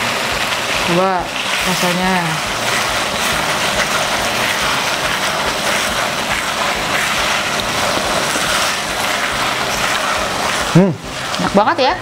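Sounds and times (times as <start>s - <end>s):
spice paste sizzling in a wok: 0.0s - 12.0s.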